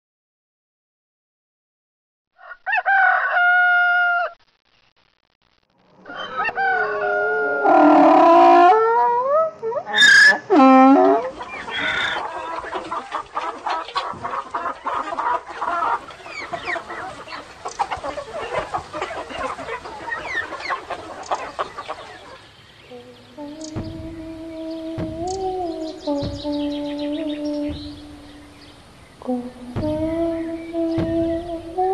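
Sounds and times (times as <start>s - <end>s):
rooster crowing: 2.4s - 4.4s, 6.0s - 9.0s
chickens clucking: 6.0s - 31.9s.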